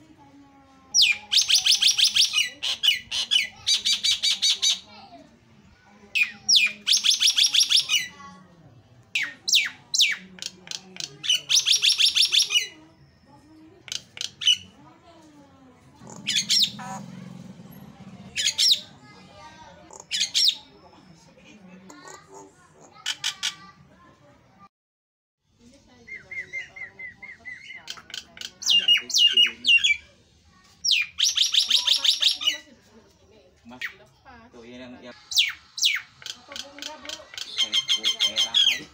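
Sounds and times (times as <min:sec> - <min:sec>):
myna bird calling: 0:00.9 - 0:04.9, 0:06.2 - 0:08.2, 0:09.1 - 0:12.8, 0:13.9 - 0:14.8, 0:16.0 - 0:19.0, 0:19.9 - 0:20.8, 0:26.0 - 0:30.0, 0:30.8 - 0:32.7, 0:35.2 - 0:38.9
myna chirps and whistles: 0:26.1 - 0:28.0.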